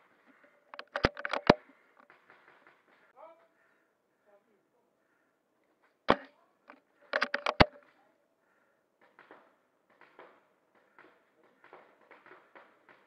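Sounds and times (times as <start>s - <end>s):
rifle bolt clicks: 7.2s - 7.8s.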